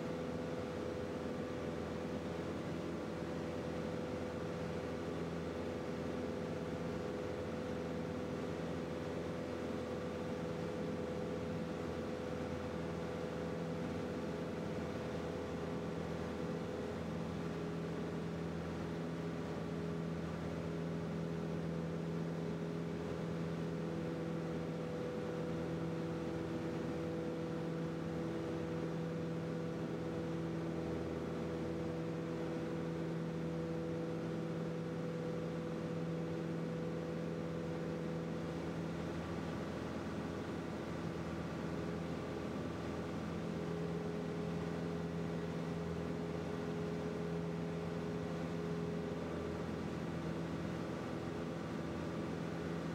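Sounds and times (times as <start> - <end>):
propeller airplane engine droning: 0.0 - 52.9.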